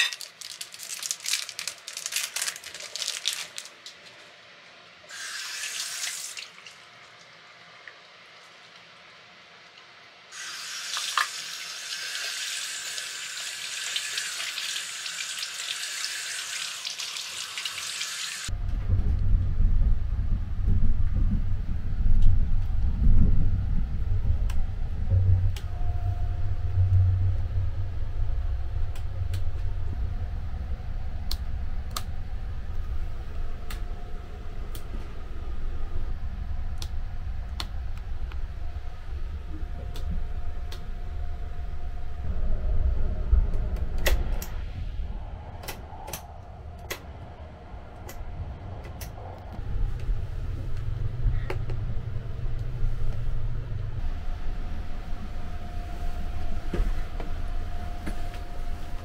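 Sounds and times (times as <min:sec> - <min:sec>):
train rumbling: 0:18.5 - 0:59.0.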